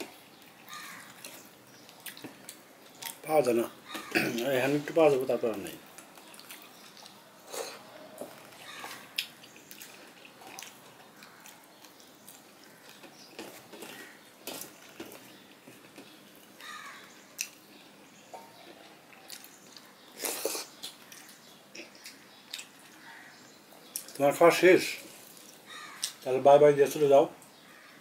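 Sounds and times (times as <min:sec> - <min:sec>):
wet eating by hand: 0:05.8 - 0:23.2, 0:25.0 - 0:26.2.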